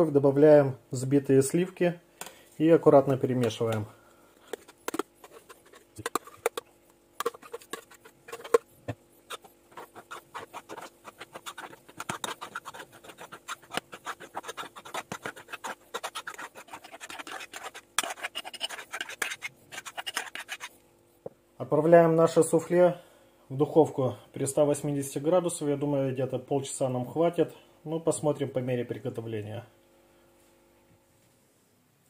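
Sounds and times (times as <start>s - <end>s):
spoon scraping metal saucepan: 4.5s - 6.6s, 7.2s - 8.6s, 9.3s - 20.7s.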